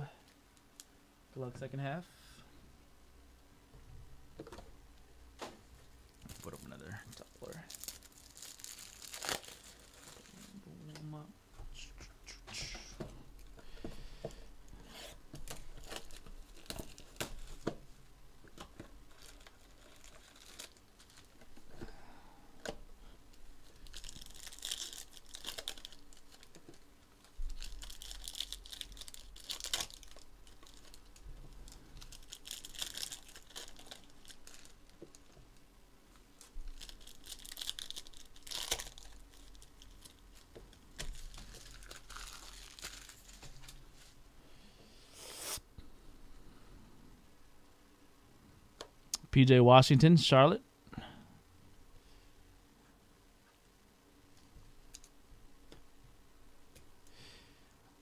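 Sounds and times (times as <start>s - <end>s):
foil wrappers tearing and crinkling: 6.2s - 10.6s, 15.4s - 17.7s, 19.0s - 21.5s, 23.6s - 35.4s, 36.4s - 43.8s.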